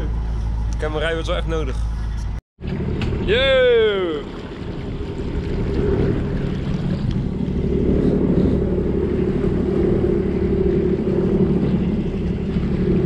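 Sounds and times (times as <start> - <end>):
jet ski engine running: 0.0 - 13.0
wind on microphone: 2.1 - 13.0.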